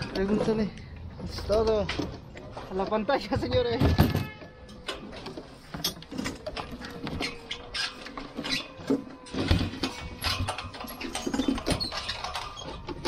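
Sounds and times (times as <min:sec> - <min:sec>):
metal clamp clicks and clanks: 0:03.9 - 0:13.0.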